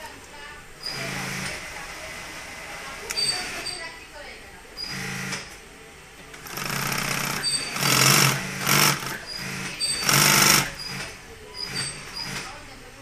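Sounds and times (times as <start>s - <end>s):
industrial sewing machine stitching: 6.4s - 12.5s.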